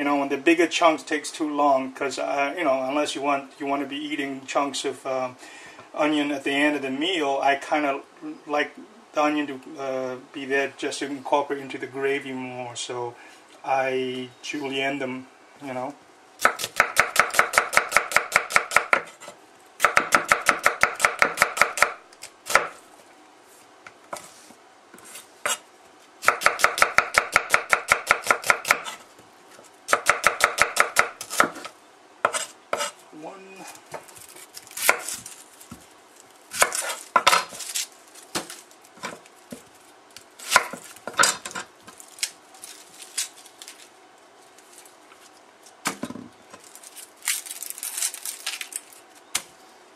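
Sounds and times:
knife chopping on wooden board: 0:16.4 - 0:19.2, 0:19.8 - 0:22.8, 0:26.2 - 0:29.0, 0:29.9 - 0:32.9, 0:36.6 - 0:37.6, 0:40.5 - 0:41.3.

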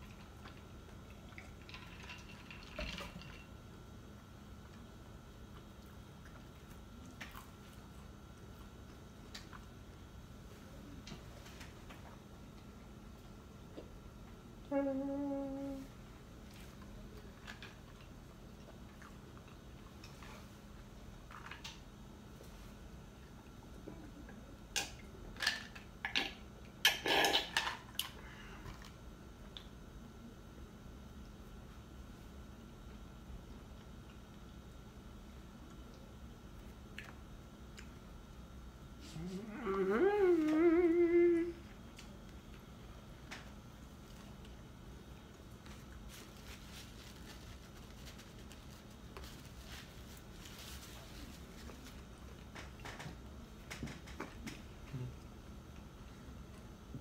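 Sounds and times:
low room hum: 0:00.0 - 0:57.0
chewing and mouth sounds: 0:35.6 - 0:38.2.

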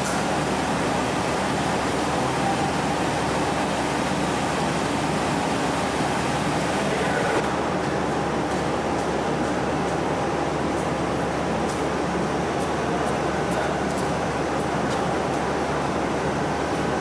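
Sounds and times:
faint steady whine: 0:00.0 - 0:08.4
industrial blower fan rushing air: 0:00.0 - 0:17.0.

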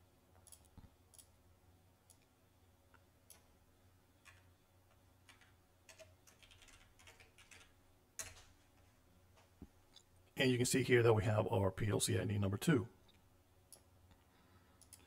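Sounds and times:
computer keyboard typing: 0:04.2 - 0:04.5, 0:05.2 - 0:08.6.

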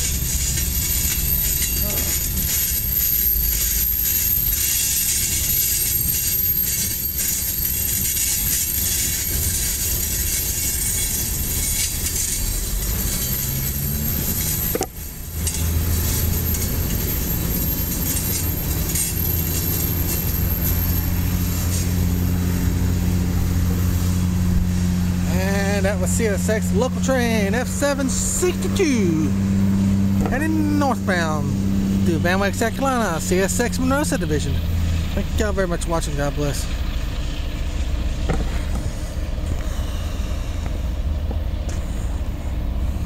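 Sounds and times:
freight train rolling on rails: 0:00.0 - 0:30.2
steady low hum: 0:00.0 - 0:43.0.

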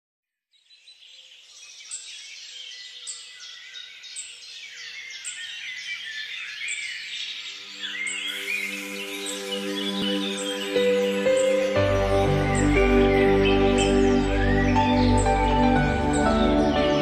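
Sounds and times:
birds chirping and calling: 0:00.7 - 0:17.0
soft music with held notes: 0:07.3 - 0:17.0.

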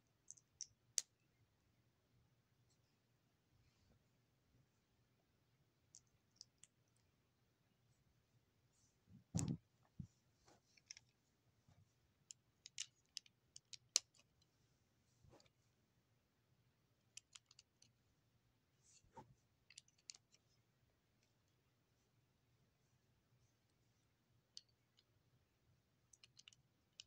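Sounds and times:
plastic bricks clicking: 0:26.1 - 0:27.0.

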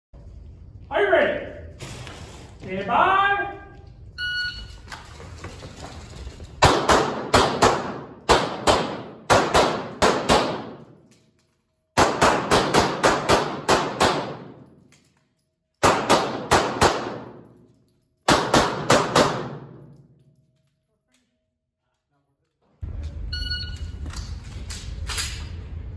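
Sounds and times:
pistol shots echoing indoors: 0:06.6 - 0:20.8
shot timer beep: 0:23.3 - 0:23.9.

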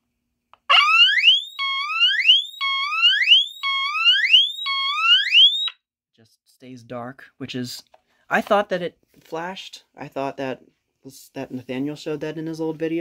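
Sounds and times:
smoke detector siren whooping: 0:00.7 - 0:05.8.

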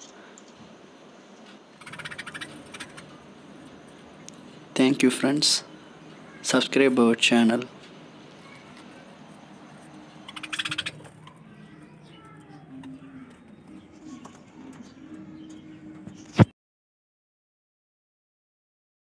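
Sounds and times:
budgerigars chirping: 0:01.8 - 0:03.2, 0:10.1 - 0:13.0.

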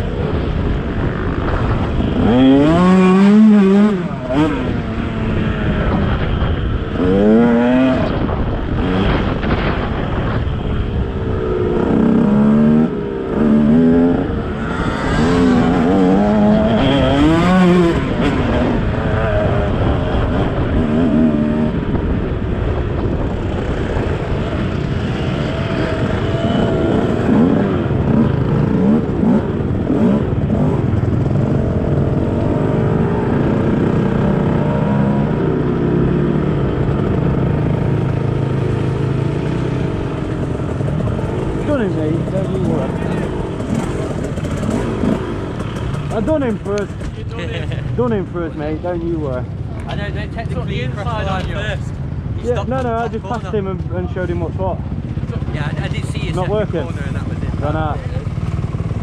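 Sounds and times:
motocross bike engine revving: 0:00.0 - 0:22.4, 0:23.0 - 0:49.7.

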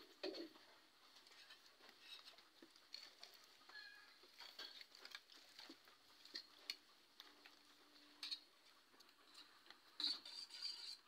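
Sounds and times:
faint clicks and ticks: 0:01.2 - 0:10.1.

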